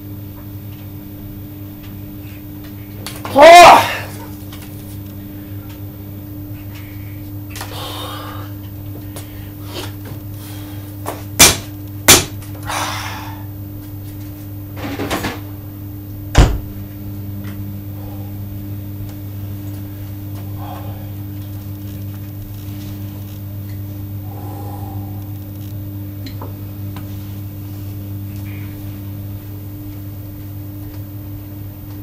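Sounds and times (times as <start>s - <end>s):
steady low hum: 0.0s - 32.0s
deep thump: 16.3s - 16.7s.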